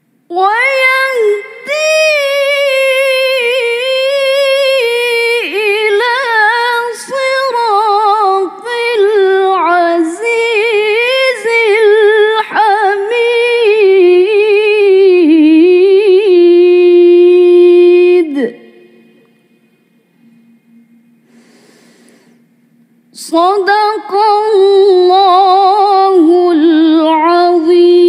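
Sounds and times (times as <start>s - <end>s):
woman chanting melodically: 0.3s - 19.2s, 23.1s - 28.0s
woman breathing: 21.2s - 22.6s.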